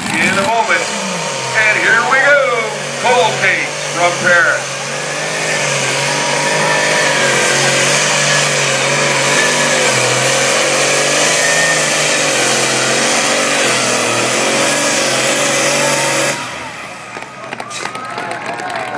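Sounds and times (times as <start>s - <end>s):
tractor engine running hard: 0.0s - 18.9s.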